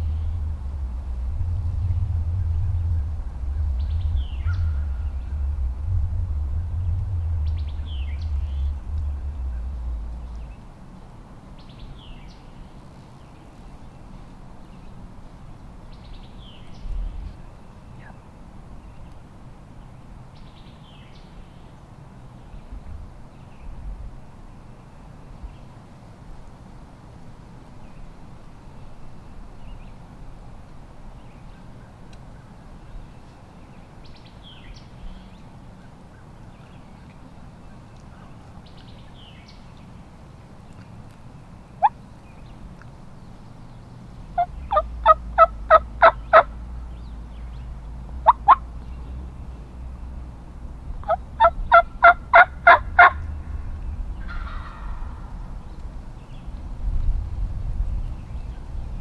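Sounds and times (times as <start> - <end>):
faint songbird chirps: 0.0 - 10.7, 11.5 - 26.9, 27.6 - 30.2, 31.0 - 50.4, 57.3 - 59.0
turkey yelping: 44.4 - 46.5, 51.0 - 53.2.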